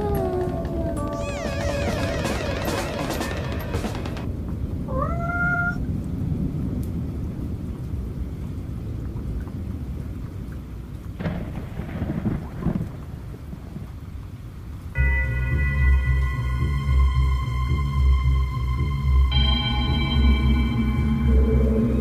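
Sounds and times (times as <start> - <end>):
rising call: 0.0 - 4.2, 15.0 - 22.0
rain: 0.0 - 22.0
thunder rumble: 0.0 - 22.0
harsh peal of thunder: 11.2 - 14.0.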